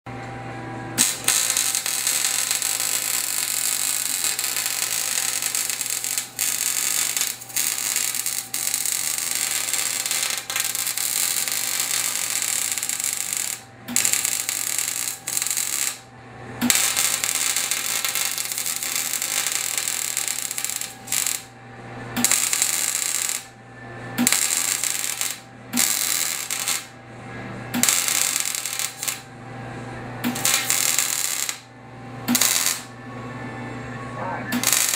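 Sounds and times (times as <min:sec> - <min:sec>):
welding arc crackling hiss: 0:01.0 - 0:16.0, 0:16.6 - 0:21.5, 0:22.2 - 0:23.5, 0:24.2 - 0:26.9, 0:27.8 - 0:29.2, 0:30.3 - 0:31.6, 0:32.3 - 0:32.9, 0:34.6 - 0:34.9.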